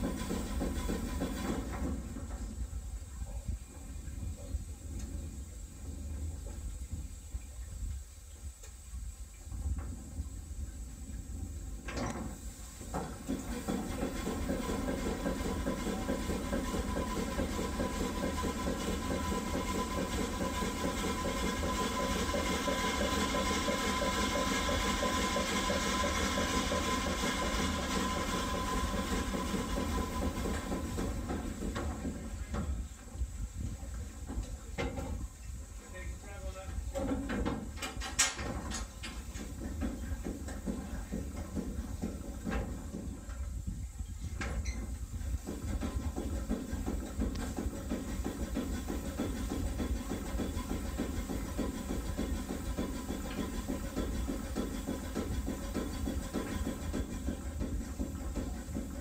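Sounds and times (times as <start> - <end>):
steam hissing: 0.0 - 1.9, 12.4 - 31.7
steam engine mechanical beat: 0.0 - 2.0, 12.7 - 32.4, 45.3 - 59.0.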